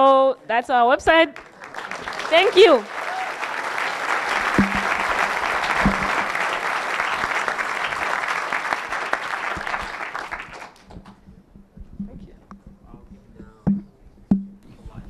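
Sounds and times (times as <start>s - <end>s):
audience applauding: 1.3s - 11.2s
low thumps: 4.4s - 6.4s, 10.8s - 15.0s.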